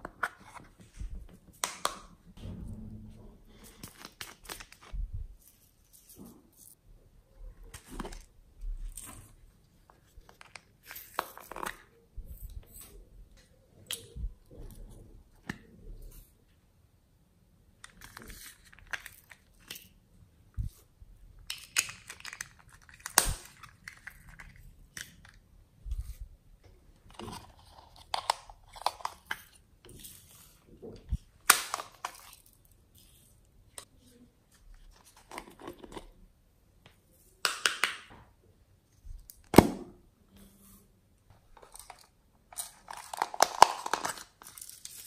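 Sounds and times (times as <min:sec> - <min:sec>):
plastic containers clicking and crinkling: 0:21.4 - 0:25.5, 0:26.9 - 0:30.0, 0:30.9 - 0:32.7, 0:34.8 - 0:36.2, 0:41.4 - 0:45.0.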